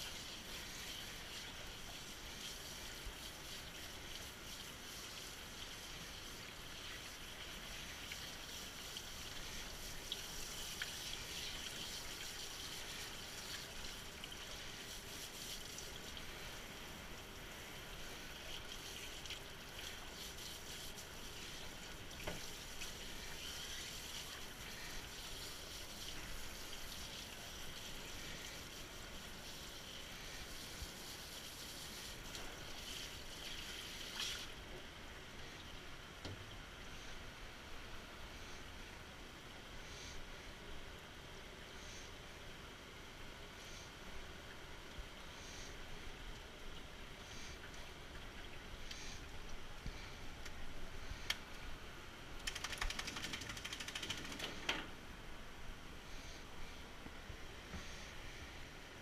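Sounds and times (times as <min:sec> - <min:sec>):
water spraying onto dog: 0:00.0 - 0:16.6, 0:17.2 - 0:34.6, 0:52.4 - 0:54.6.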